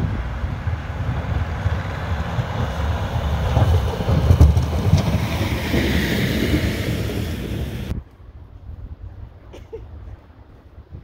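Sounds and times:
diesel truck engine rumbling past: 0:00.0 - 0:07.9.

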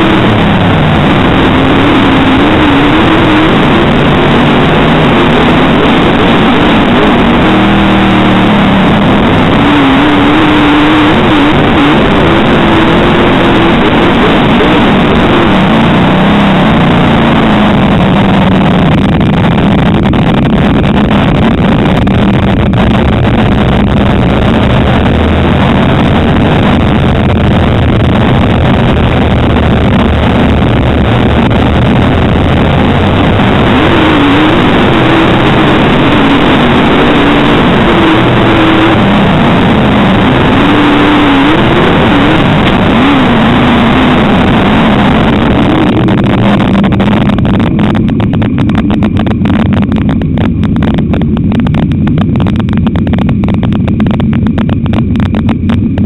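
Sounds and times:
race car engine revving: 0:00.0 - 0:56.0
wind noise: 0:00.0 - 0:56.0.

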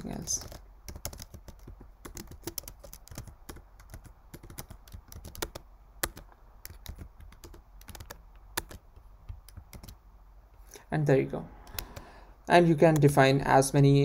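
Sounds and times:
keyboard typing clicks: 0:00.3 - 0:10.0, 0:11.6 - 0:12.1.

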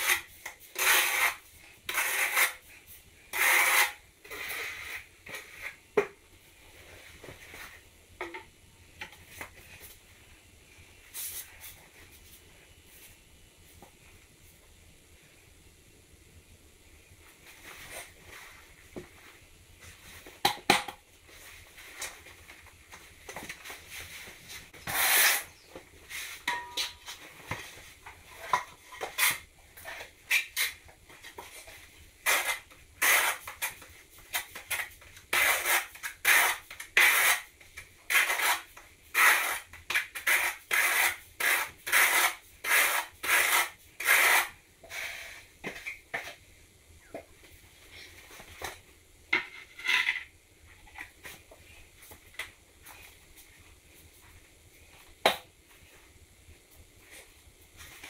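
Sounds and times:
trowel scraping mortar: 0:00.0 - 0:02.6, 0:03.3 - 0:05.8, 0:24.8 - 0:25.6, 0:32.2 - 0:33.7, 0:34.6 - 0:37.5, 0:38.1 - 0:45.4.

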